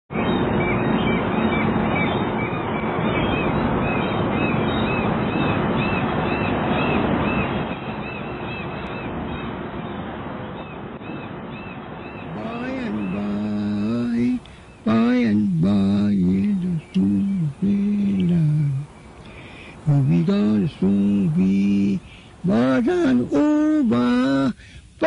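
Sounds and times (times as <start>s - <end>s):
seagulls calling: 0.1s - 15.2s
steady rushing noise: 0.1s - 25.0s.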